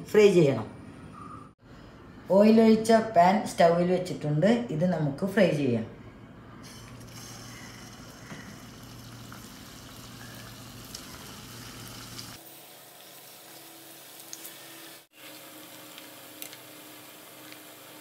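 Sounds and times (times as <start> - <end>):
food sizzling in hot oil: 7.0 - 18.0.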